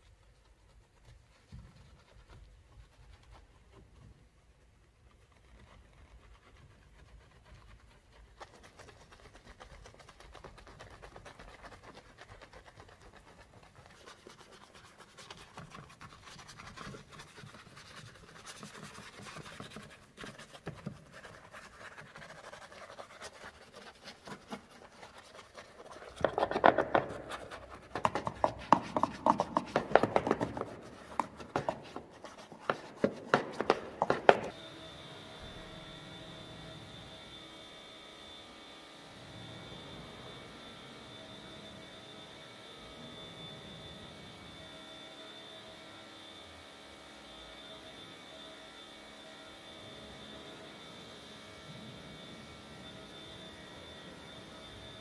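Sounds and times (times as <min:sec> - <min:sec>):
brush scrubbing soapy foam: 0:00.0 - 0:34.6.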